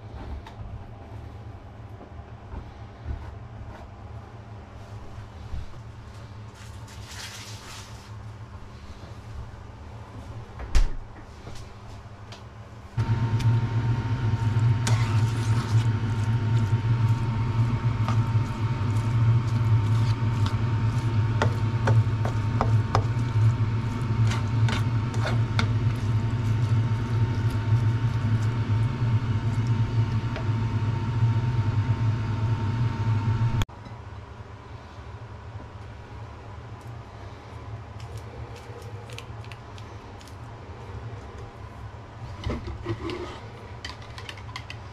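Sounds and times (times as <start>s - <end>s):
steady low hum: 11.2s - 42.8s
onions and bacon frying: 13.0s - 32.7s
spatula scraping a pan: 14.8s - 28.2s.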